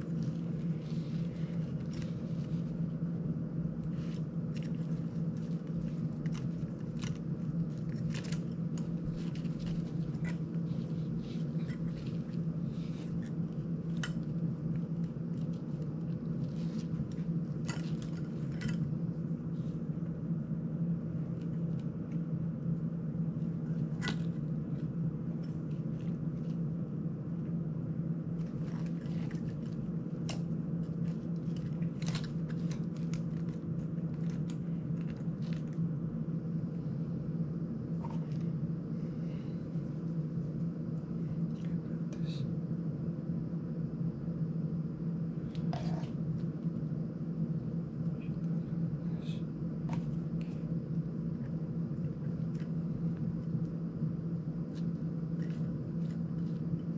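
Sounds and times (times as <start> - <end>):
steady low hum: 0.0 - 56.9.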